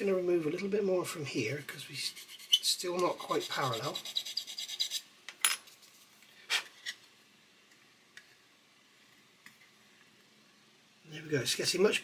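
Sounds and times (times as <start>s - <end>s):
file rasping on plastic: 2.0s - 5.0s.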